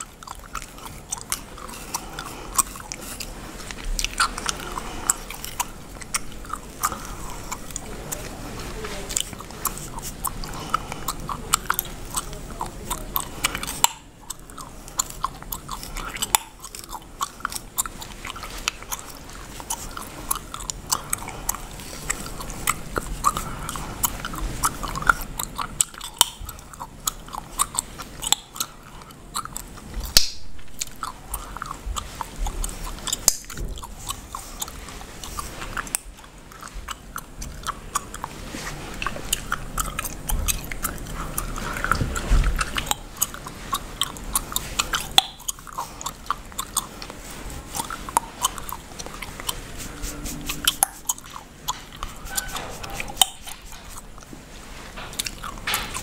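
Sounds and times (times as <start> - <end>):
wet chewing: 0.0 - 56.0
bubblegum snapping: 29.5 - 31.0, 33.2 - 34.2.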